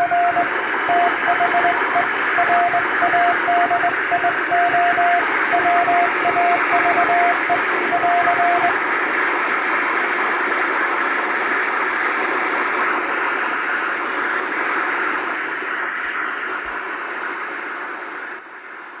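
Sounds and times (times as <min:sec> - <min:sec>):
morse code tone: 0:00.0 - 0:08.7
radio hiss: 0:00.0 - 0:19.0.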